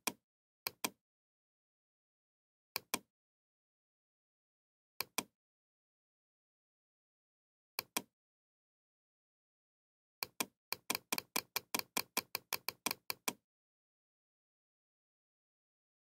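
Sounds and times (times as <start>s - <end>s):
computer mouse scroll clicks: 10.2s - 13.4s.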